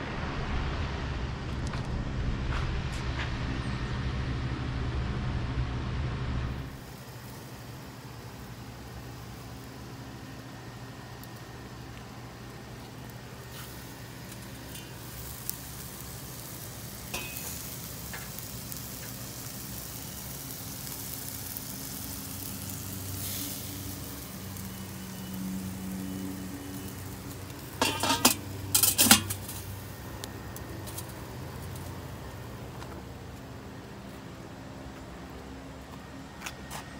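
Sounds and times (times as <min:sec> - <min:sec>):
steaks sizzling on a grill: 0:06.7 - 0:32.8
metal lid clanking: 0:17.1 - 0:17.6, 0:27.8 - 0:29.6.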